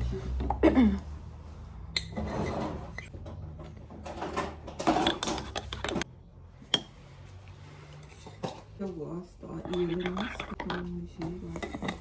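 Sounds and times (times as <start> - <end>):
spoon scraping coffee in a jar: 4.9 - 6.0, 9.5 - 12.0.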